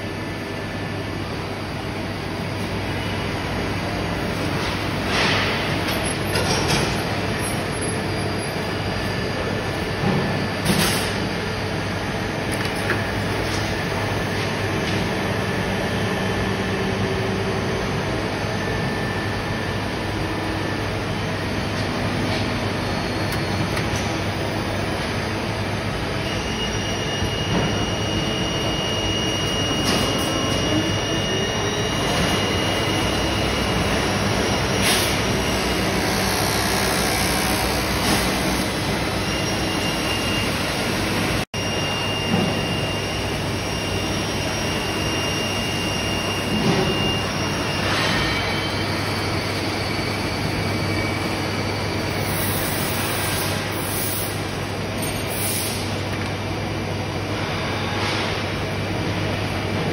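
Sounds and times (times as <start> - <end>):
high machine whine: 0.0 - 59.9
machine drone: 0.0 - 59.9.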